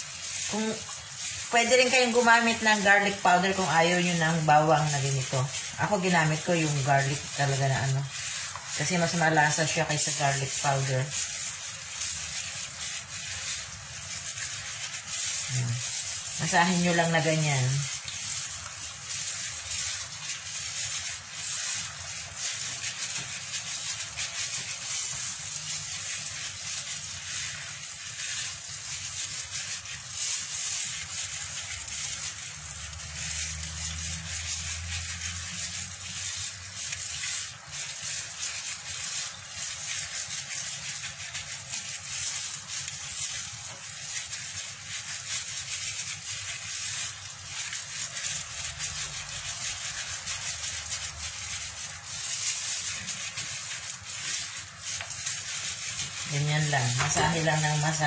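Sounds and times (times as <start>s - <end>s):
gloved hand kneading wet meat: 0.0s - 58.0s.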